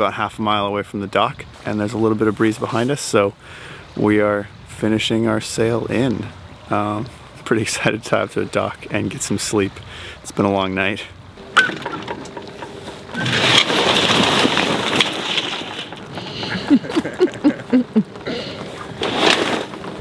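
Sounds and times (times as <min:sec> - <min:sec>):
short squeaks: 0:11.4 - 0:15.0
sailcloth flapping and rustling: 0:11.8 - 0:20.0.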